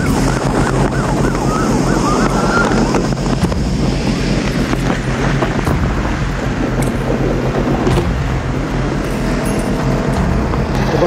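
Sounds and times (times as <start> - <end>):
siren sweeping up and down: 0.0 - 5.6
motorcycle at high speed: 0.0 - 11.0
wind rushing over microphone: 0.0 - 11.0.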